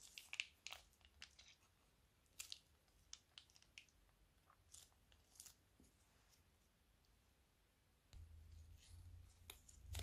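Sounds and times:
plastic piping bag crinkling: 0.0s - 1.6s.

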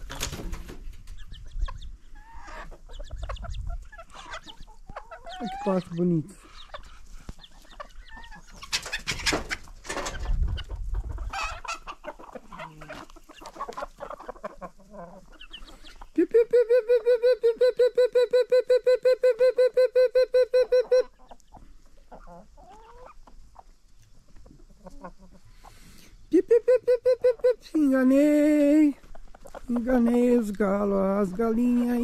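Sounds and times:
hens clucking: 0.0s - 32.0s
fast repeated calling: 26.4s - 27.8s.

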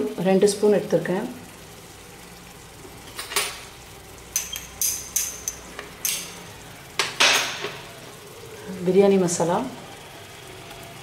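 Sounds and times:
glass bowl clinking on metal pot: 4.3s - 6.4s.

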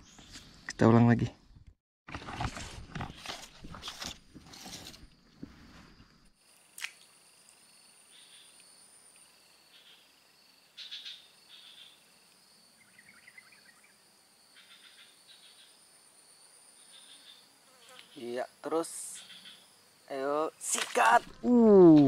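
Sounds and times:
buzzy cricket-like chirps: 4.5s - 21.3s
high-pitched insect whine: 6.4s - 22.0s.

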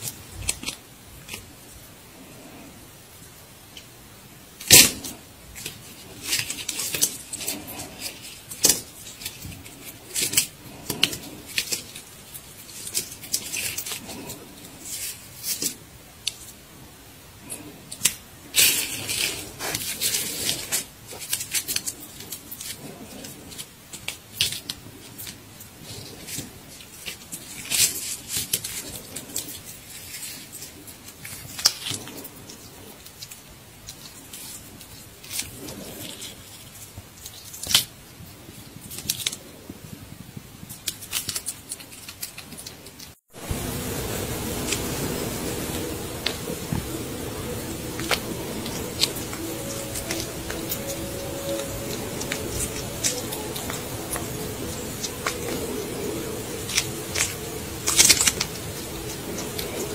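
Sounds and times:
hedgehog crunching a dry treat: 40.6s - 43.1s, 44.4s - 59.9s.

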